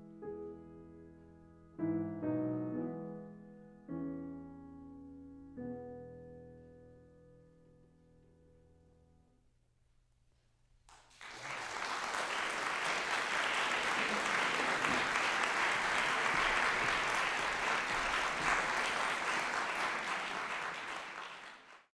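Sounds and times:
audience applauding: 10.9s - 21.9s.

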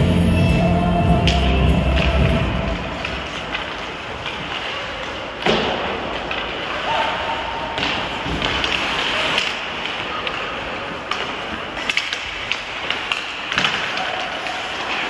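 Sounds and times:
skate blades scraping ice: 1.3s - 15.0s
hockey sticks clacking on puck: 3.0s - 15.0s.

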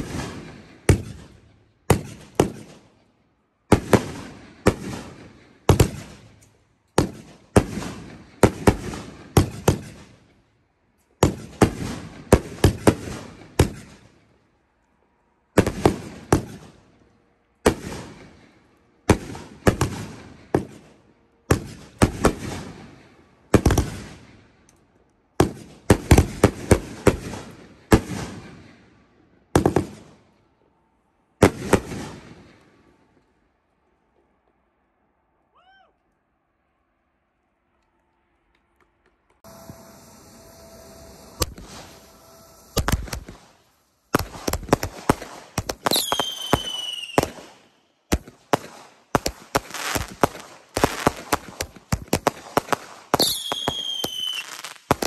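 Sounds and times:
fireworks bursting: 0.0s - 3.0s, 3.7s - 6.4s, 7.0s - 10.4s, 11.2s - 14.3s, 15.6s - 17.0s, 17.6s - 24.6s, 25.4s - 30.4s, 31.4s - 33.1s, 39.4s - 55.0s.

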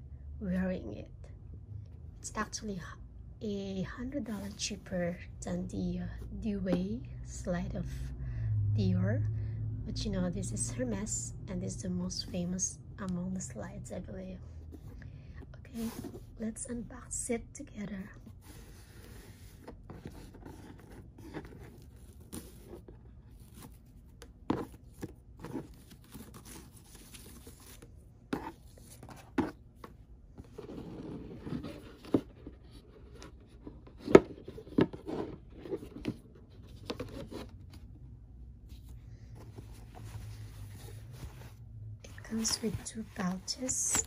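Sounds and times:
rustling and scraping: 15.8s - 16.4s, 18.0s - 38.0s, 38.6s - 44.0s.

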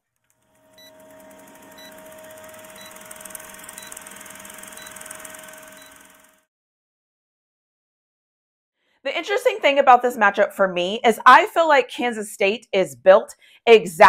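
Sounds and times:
film projector whirring clatter: 0.1s - 6.5s
projector hum: 0.4s - 6.4s
short high beeps: 1.8s - 2.0s, 3.8s - 4.1s, 4.8s - 6.0s.

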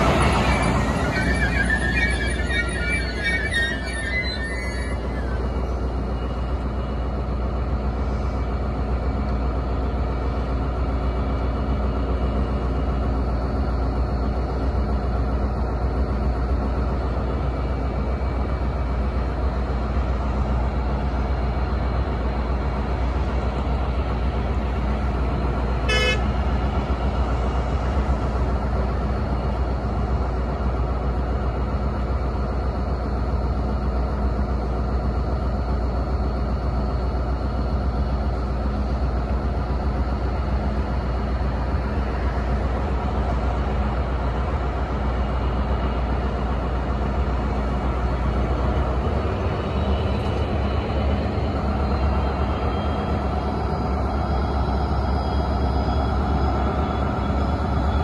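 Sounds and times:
diesel locomotive idling: 0.0s - 58.0s
locomotive horn toot: 25.8s - 26.3s.

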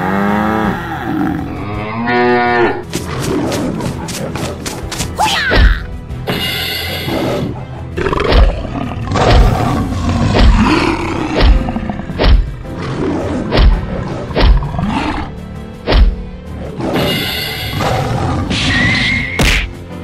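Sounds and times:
lion roaring and growling: 0.0s - 4.7s, 7.1s - 15.4s, 16.6s - 19.0s
background music: 0.0s - 20.0s.

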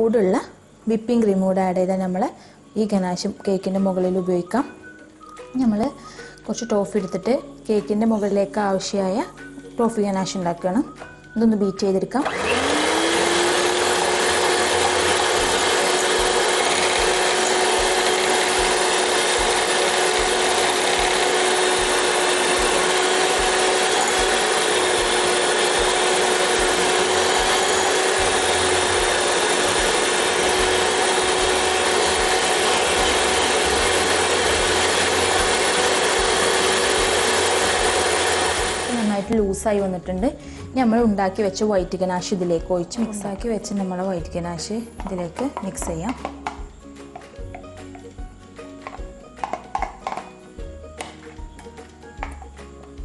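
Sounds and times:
electric hand mixer whining: 12.2s - 39.3s.

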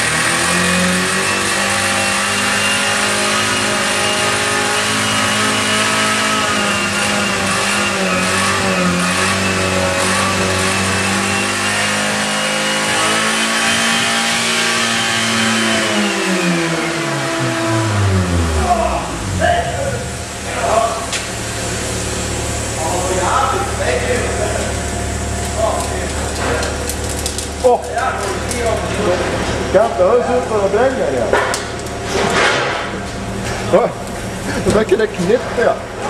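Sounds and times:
car engine revving hard: 0.0s - 25.4s.

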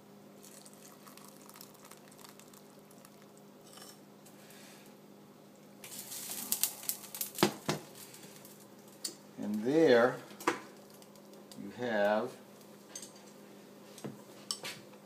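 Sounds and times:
broth being ladled: 0.4s - 3.2s.

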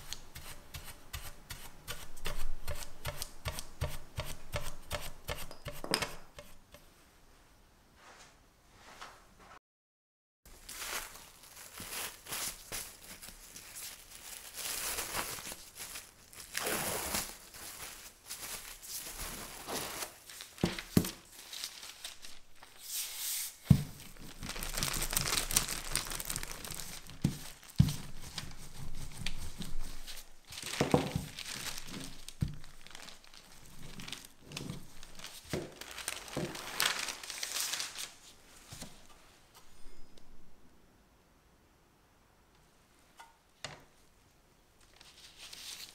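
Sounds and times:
plastic and paper crinkling: 10.5s - 22.8s, 23.7s - 39.1s, 44.8s - 45.9s.

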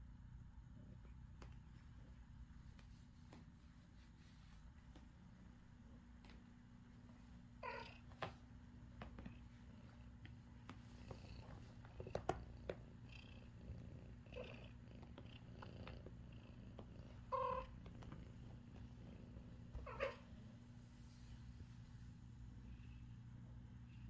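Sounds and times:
cat purring: 7.6s - 24.0s.

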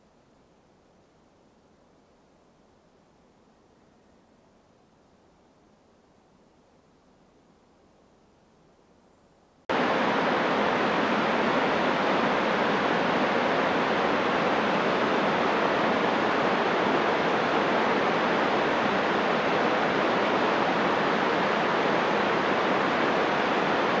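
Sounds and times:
stream rushing over rocks: 9.7s - 24.0s.

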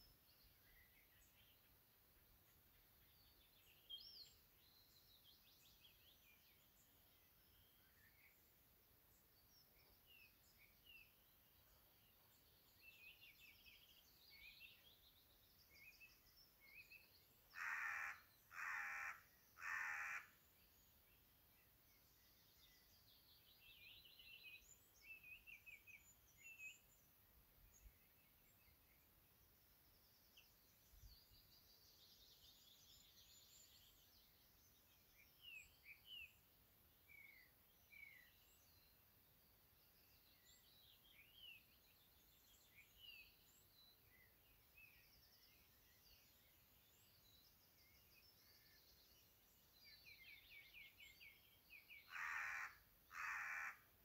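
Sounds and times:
small birds chirping: 0.0s - 54.0s
harsh cawing bird calls: 17.5s - 20.4s, 52.1s - 53.9s.

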